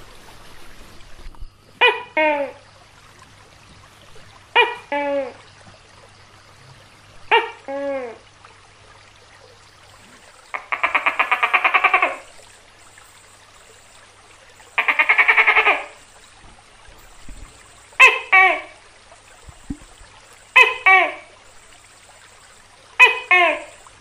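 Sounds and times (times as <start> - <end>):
gecko calling: 10.2 - 16.4, 17.0 - 24.0.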